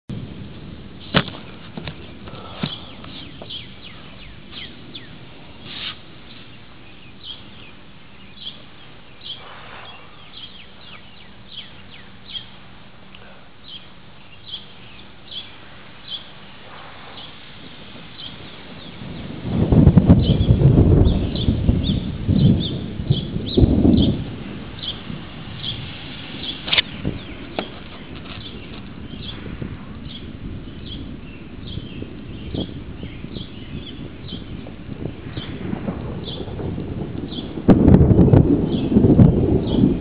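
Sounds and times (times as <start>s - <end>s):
bird chirping: 1.9s - 17.5s, 18.1s - 19.3s, 20.2s - 24.2s, 24.8s - 35.6s.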